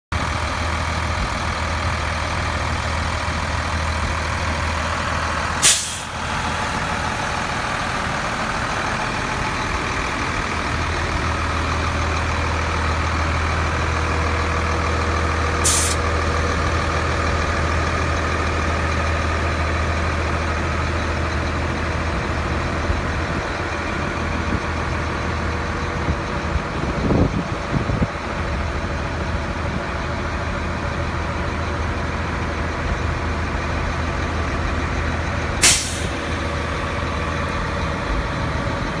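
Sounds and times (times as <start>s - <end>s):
truck engine idling: 0.1s - 39.0s
air brake hiss: 5.6s - 6.2s, 15.6s - 16.0s, 35.6s - 36.2s.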